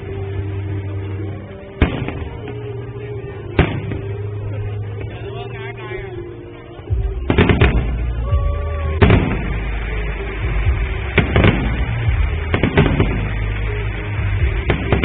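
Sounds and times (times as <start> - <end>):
music playing: 0.0 - 15.0
firework shells bursting: 1.8 - 2.9, 3.5 - 4.4, 6.8 - 8.3, 9.0 - 15.0.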